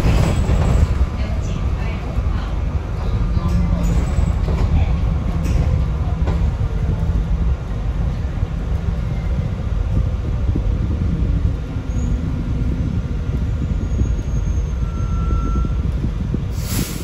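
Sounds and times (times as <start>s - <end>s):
bus cabin rumble: 0.0s - 17.0s
brief hiss: 16.6s - 17.0s.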